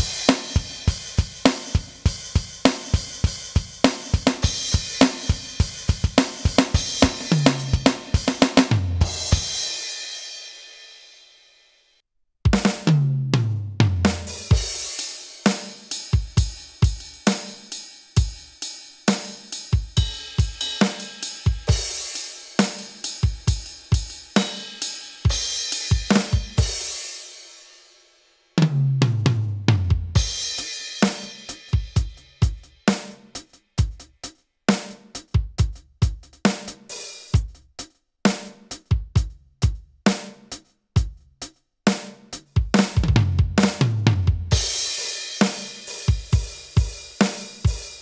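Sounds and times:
electronic drum tom fill: 0.0 - 10.0, 12.5 - 27.0, 42.4 - 48.0
drum beat with kick snare hi-hat: 0.0 - 11.5, 12.4 - 48.0
cymbal crash ringing: 9.0 - 11.5.

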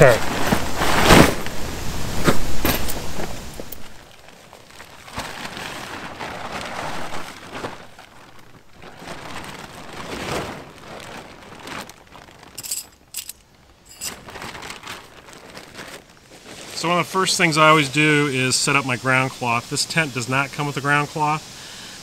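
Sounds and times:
plastic tarp rustling and flapping: 0.0 - 21.5
metal tent stakes clinking: 12.5 - 14.5.

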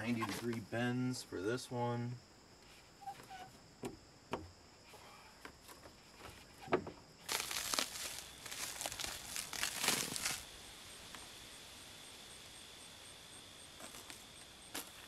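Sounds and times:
plastic tubing crinkling and rustling: 7.2 - 10.5.

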